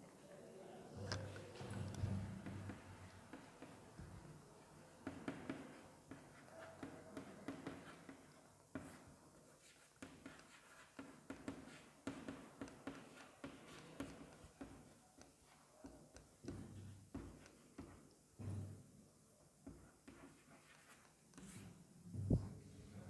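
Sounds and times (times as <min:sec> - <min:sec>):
chalk writing on chalkboard: 0:02.4 - 0:04.2, 0:04.8 - 0:18.2, 0:19.6 - 0:21.8.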